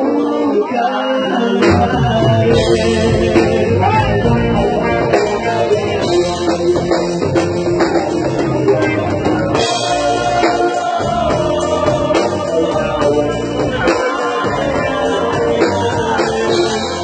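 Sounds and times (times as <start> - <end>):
live band music with guitar: 0.0 - 17.0
men singing: 0.0 - 17.0.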